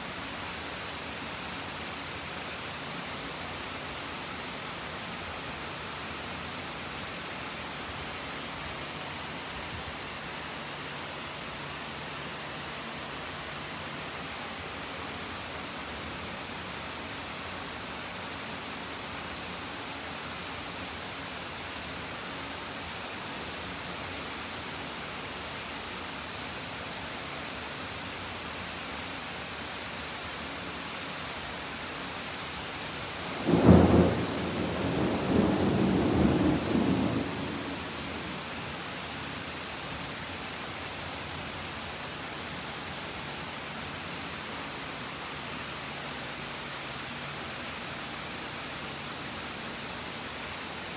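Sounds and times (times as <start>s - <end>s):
rain hissing: 0.0s - 50.9s
thunder clap and rumble: 33.4s - 38.3s.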